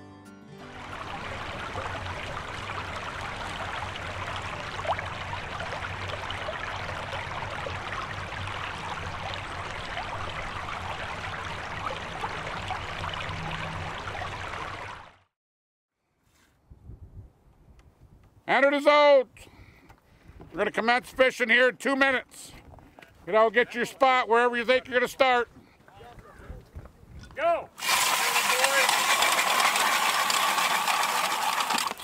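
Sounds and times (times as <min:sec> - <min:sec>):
creek water flowing: 0:00.6 - 0:15.3, 0:27.8 - 0:32.0.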